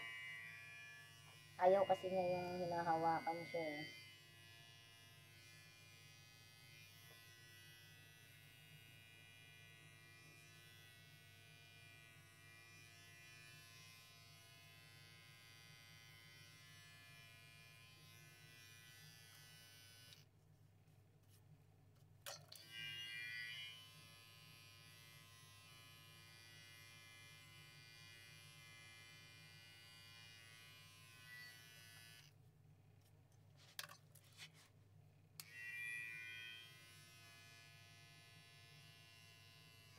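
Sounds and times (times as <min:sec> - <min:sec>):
electric hair clippers buzzing: 0:00.0 - 0:20.2, 0:22.6 - 0:32.3, 0:35.4 - 0:39.9.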